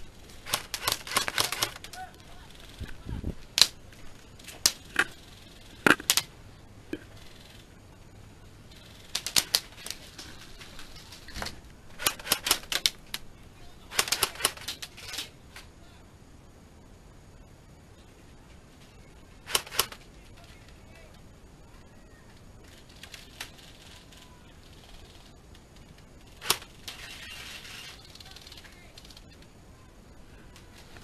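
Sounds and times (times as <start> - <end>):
airsoft guns firing: 0.0 - 2.8, 4.4 - 6.4, 9.0 - 13.3, 13.9 - 15.3, 19.4 - 20.0, 26.4 - 27.4.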